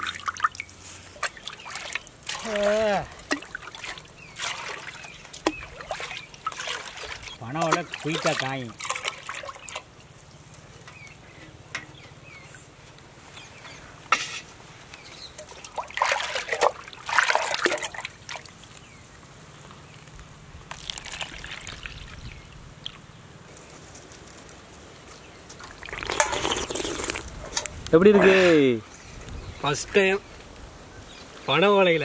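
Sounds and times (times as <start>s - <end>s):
juice trickling and splashing: 0.0s - 11.0s, 15.4s - 18.8s, 20.7s - 23.0s, 25.5s - 27.3s.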